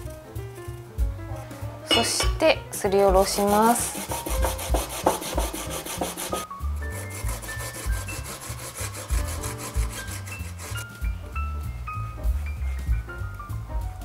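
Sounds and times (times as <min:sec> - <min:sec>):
background music: 0:00.0 - 0:14.0
radish rasping on metal grater: 0:03.2 - 0:10.9.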